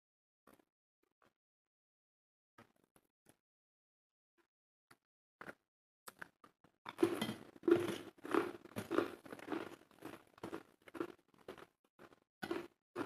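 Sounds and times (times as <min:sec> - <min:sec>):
wet chewing of food: 0:05.4 - 0:13.0.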